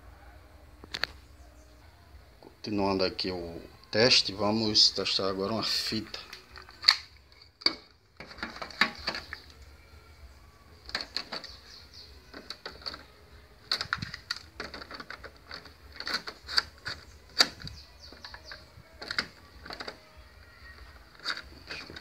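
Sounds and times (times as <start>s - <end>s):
cassette tape clicks and clatter: 5.9s - 9.6s, 10.8s - 22.0s.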